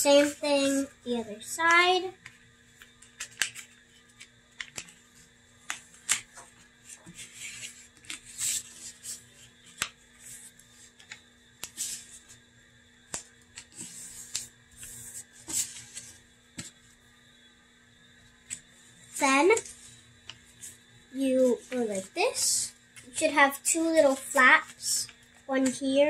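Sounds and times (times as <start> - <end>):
paper rustling and crinkling: 2.8 - 12.4, 13.2 - 16.8.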